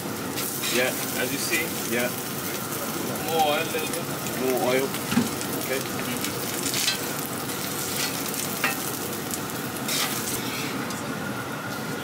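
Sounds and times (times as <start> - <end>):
oil sizzling on a griddle: 0.0 - 12.0
metal tongs clicking on griddle: 5.9 - 7.2, 7.9 - 8.9.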